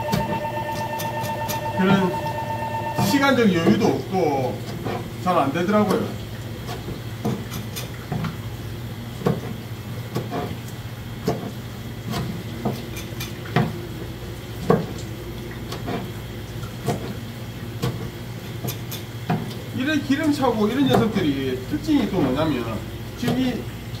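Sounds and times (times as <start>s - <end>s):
steady low hum: 0.0s - 4.3s
water running from a hose: 3.3s - 24.0s.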